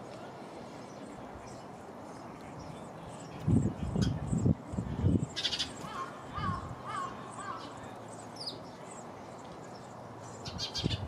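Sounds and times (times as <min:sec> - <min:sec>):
small birds chirping: 0:00.1 - 0:11.0.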